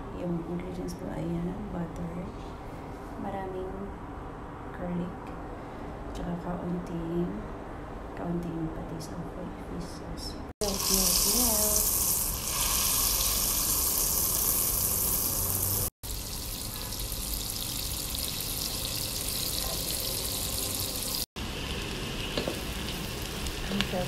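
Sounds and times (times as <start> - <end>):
butter sizzling in metal pot: 10.6 - 24.0.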